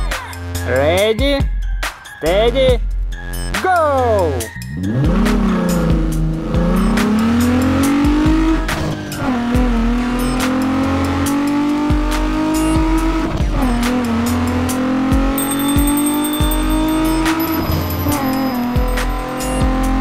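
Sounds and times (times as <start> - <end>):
background music with a beat: 0.0 - 20.0
race car engine revving: 4.6 - 20.0.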